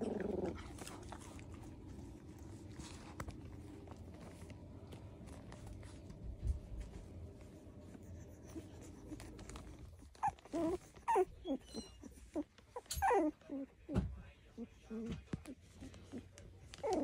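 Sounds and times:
faint shuffling and handling: 0:00.0 - 0:17.0
puppies whimpering: 0:08.2 - 0:17.0.

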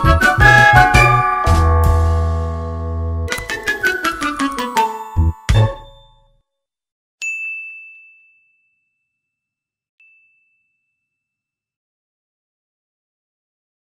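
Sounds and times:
background music: 0:00.0 - 0:06.4
bright bell-like ding: 0:07.2 - 0:09.2, 0:10.0 - 0:11.1.

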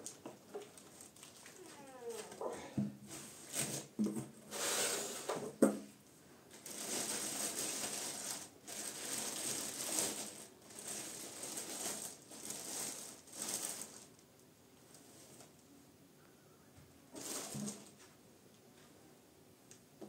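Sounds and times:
plastic wrapping crinkling: 0:00.0 - 0:02.4, 0:06.5 - 0:15.5, 0:17.1 - 0:18.1.

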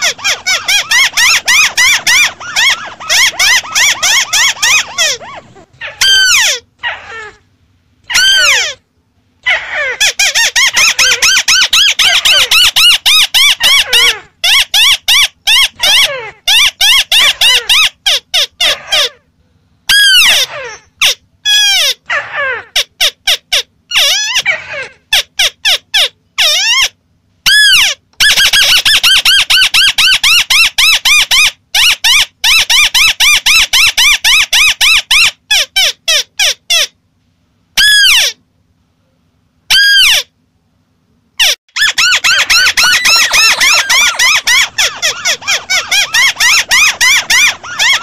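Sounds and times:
birds chattering calls: 0:00.0 - 0:06.0, 0:41.8 - 0:48.0.

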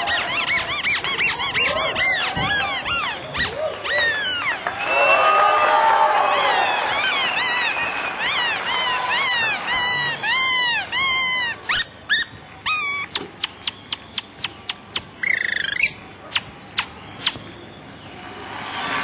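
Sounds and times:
cartoon chirps and whistles: 0:00.0 - 0:04.6, 0:06.3 - 0:17.5.

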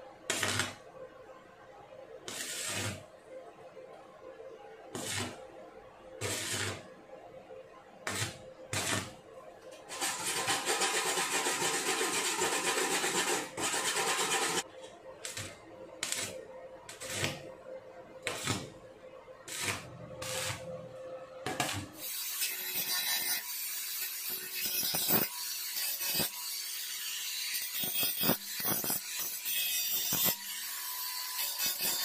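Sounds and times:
hand tool rubbing and scraping: 0:09.9 - 0:14.6, 0:16.0 - 0:17.4.

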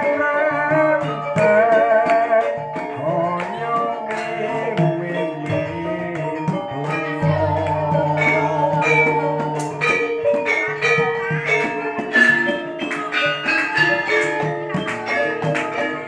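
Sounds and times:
bronze metallophones ringing: 0:00.0 - 0:16.0
hand drumming: 0:00.0 - 0:16.0.

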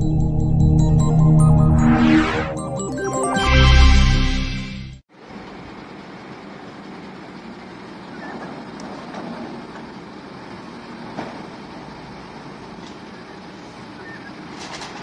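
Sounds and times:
truck engine running: 0:05.1 - 0:15.0.

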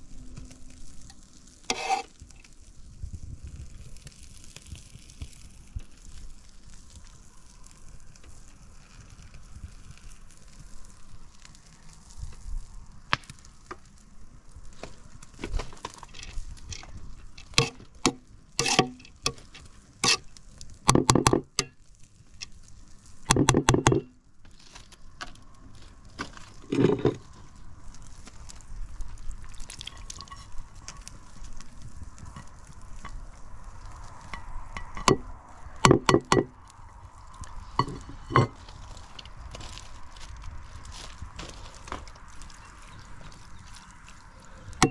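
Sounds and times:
liquid sounds: 0:26.4 - 0:36.6
pot and utensils knocking: 0:37.8 - 0:38.6.

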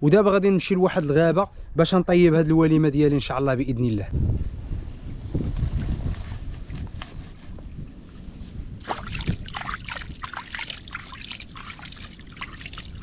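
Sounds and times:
stream water splashing and trickling: 0:08.8 - 0:13.0.

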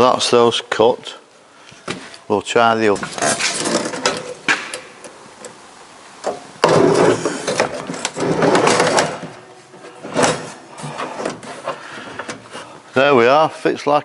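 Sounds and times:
metal scraping against plywood: 0:03.0 - 0:04.4, 0:06.6 - 0:12.8.

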